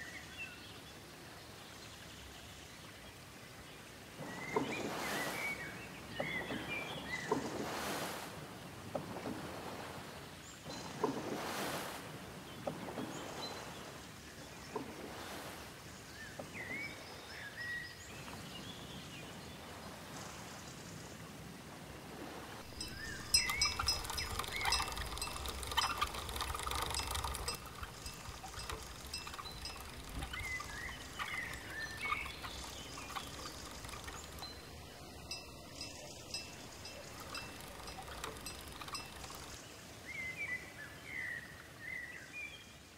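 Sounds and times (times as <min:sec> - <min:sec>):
paddle swishing through water: 0:04.1 - 0:17.5, 0:21.8 - 0:40.0
small clicks: 0:22.6 - 0:39.6
small bells clinking: 0:22.7 - 0:39.6
faint bird chirps: 0:22.7 - 0:42.8.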